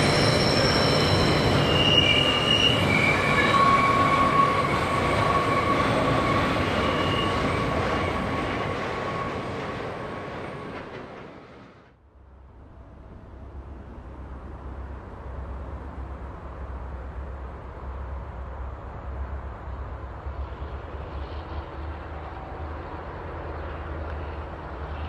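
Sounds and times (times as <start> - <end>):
train wheels squealing: 0.0 - 11.0
electric train passing: 0.0 - 25.0
rumble of train wheels: 0.0 - 25.0.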